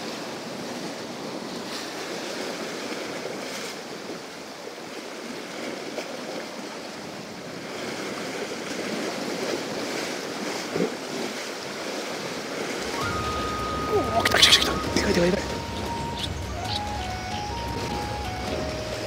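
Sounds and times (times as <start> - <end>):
sea waves breaking on rocks: 0.0 - 19.0
sharp water splash: 7.8 - 16.9.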